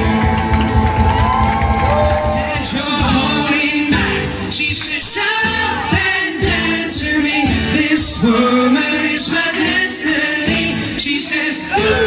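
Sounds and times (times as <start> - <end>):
live band playing: 0.0 - 12.0
person singing: 1.8 - 12.0.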